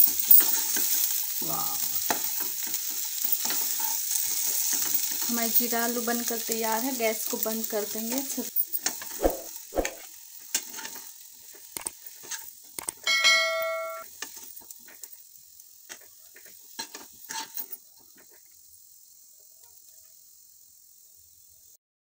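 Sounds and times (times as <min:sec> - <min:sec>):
faint sizzle: 0:00.0 - 0:21.8
spoon scraping a pan: 0:00.2 - 0:01.3, 0:02.0 - 0:05.3, 0:08.6 - 0:13.2, 0:15.9 - 0:18.5
ringing clink: 0:13.1 - 0:14.0.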